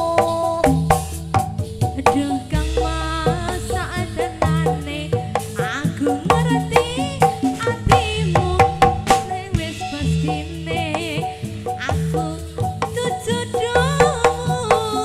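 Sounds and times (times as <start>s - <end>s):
hand drums in busy rhythm: 0.0s - 15.0s
wavering melody: 1.9s - 15.0s
repeating low gong notes: 2.6s - 6.9s.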